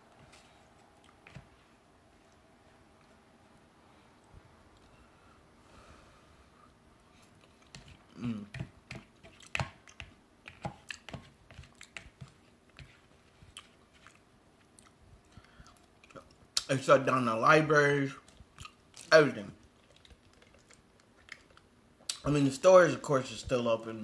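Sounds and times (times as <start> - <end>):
person chewing food: 0.1 - 3.2, 6.6 - 16.7, 18.2 - 22.2.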